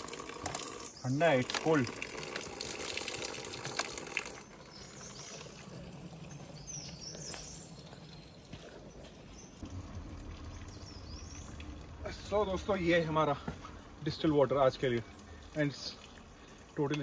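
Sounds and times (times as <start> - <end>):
spring water running and splashing: 0.0 - 6.6, 9.6 - 17.0
small birds chirping: 4.3 - 17.0
low steady hum: 9.6 - 17.0.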